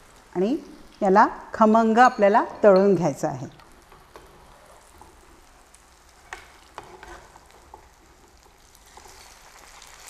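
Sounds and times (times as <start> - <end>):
food sizzling in hot oil: 3.6 - 10.0.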